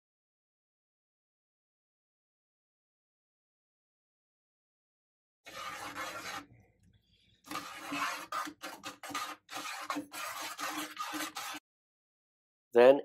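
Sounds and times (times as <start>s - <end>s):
metal tongs scraping metal pan: 5.5s - 6.5s, 7.5s - 11.6s.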